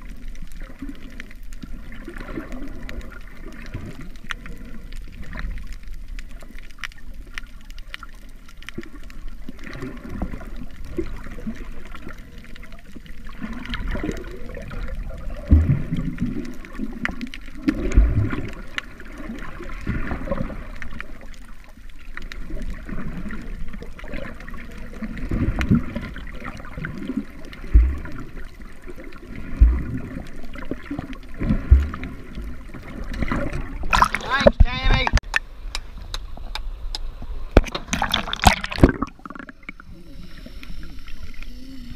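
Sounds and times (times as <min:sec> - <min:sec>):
muffled underwater gurgling: 0:06.2 - 0:21.5, 0:22.2 - 0:35.2, 0:37.6 - 0:41.9.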